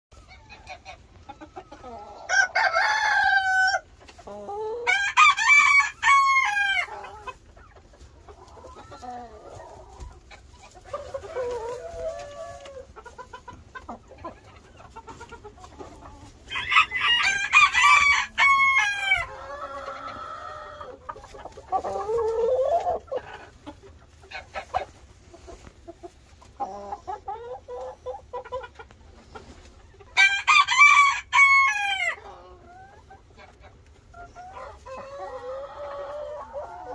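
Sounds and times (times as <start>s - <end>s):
chicken clucks: 0.1s - 36.9s
rooster crowing: 2.3s - 3.8s, 16.5s - 19.4s, 30.2s - 32.2s.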